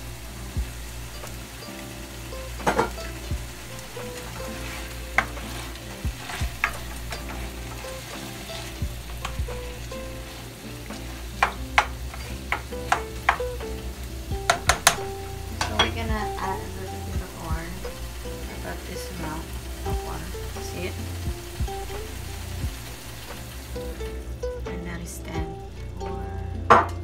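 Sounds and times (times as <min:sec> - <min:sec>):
vegetables sizzling in oil: 0:00.0 - 0:27.0
spatula tapping a pan: 0:02.6 - 0:13.8, 0:14.4 - 0:16.5, 0:26.7 - 0:27.0.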